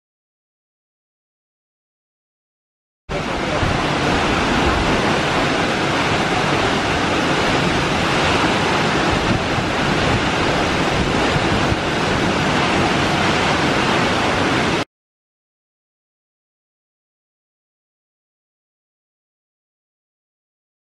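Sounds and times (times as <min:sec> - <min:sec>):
waterfall roaring: 0:03.1 - 0:14.8.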